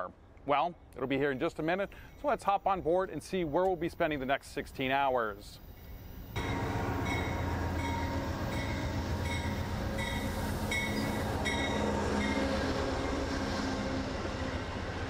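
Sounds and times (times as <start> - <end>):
locomotive bell ringing: 5.8 - 13.2
train coaches rolling: 5.8 - 15.0
diesel locomotive rumble: 6.2 - 15.0.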